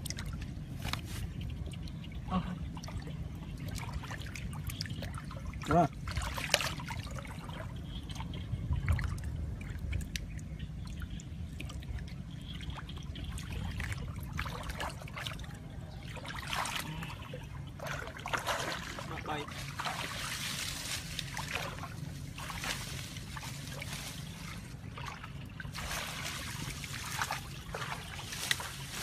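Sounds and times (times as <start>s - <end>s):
person wading through water: 0.0s - 29.0s.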